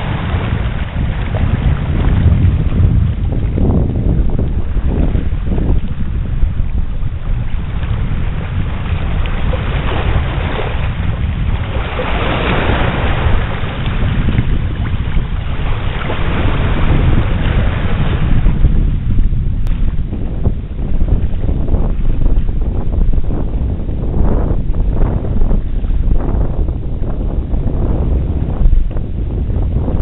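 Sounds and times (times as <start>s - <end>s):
wind buffeting microphone: 0.0s - 30.0s
small waves lapping over rocks: 6.7s - 18.0s.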